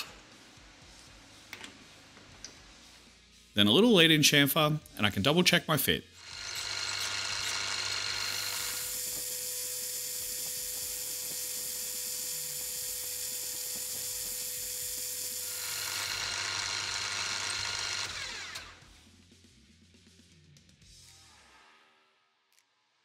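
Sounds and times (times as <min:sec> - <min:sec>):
milling machine whine: 0:06.2 - 0:18.8.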